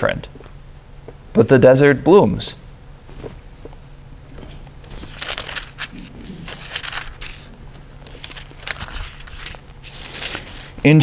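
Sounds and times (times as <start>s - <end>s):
low room hum: 0.0s - 11.0s
paper rustling: 4.3s - 10.8s.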